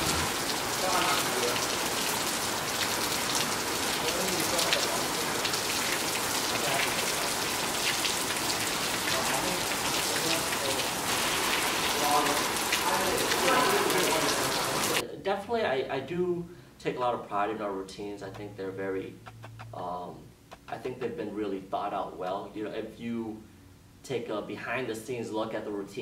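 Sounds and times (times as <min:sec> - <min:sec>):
rain on a hard surface: 0:00.0 - 0:15.0.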